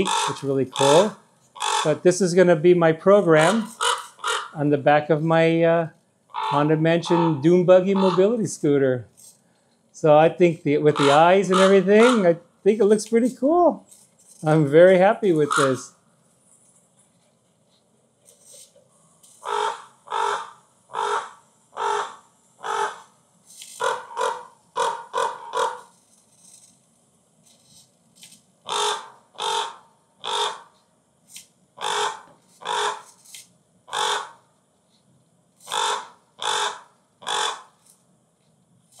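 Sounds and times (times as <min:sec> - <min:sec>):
recorded crow caws from speakers: 0:00.0 - 0:05.7, 0:06.3 - 0:08.8, 0:10.1 - 0:13.0, 0:14.4 - 0:16.0, 0:19.4 - 0:25.9, 0:28.6 - 0:30.8, 0:31.8 - 0:33.2, 0:33.9 - 0:34.5, 0:35.6 - 0:37.8
faint steady background noise: 0:00.0 - 0:39.0.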